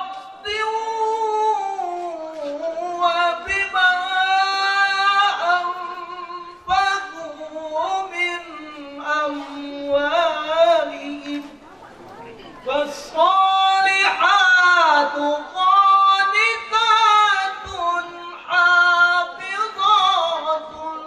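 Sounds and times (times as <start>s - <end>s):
man reciting melodically: 0.0s - 11.6s, 12.6s - 21.0s.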